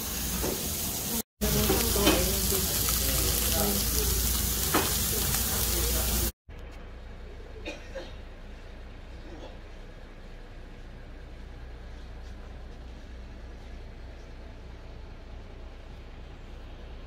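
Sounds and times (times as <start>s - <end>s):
meat sizzling on grill plate: 0.1s - 6.3s.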